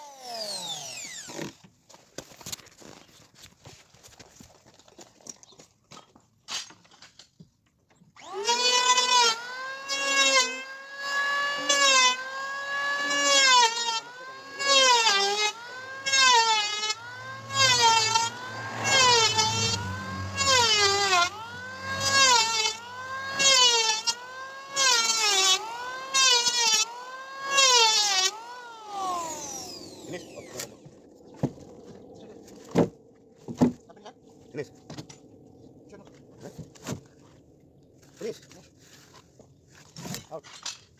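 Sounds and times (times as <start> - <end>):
electric hand planer whining: 0.0 - 1.6, 8.2 - 31.6.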